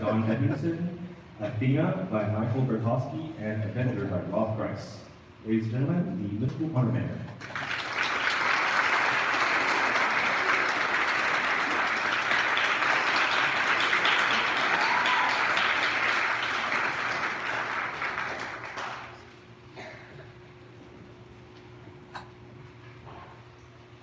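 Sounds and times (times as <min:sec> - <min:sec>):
faint steady hum: 0:00.0 - 0:24.0
audience applauding: 0:07.4 - 0:19.4.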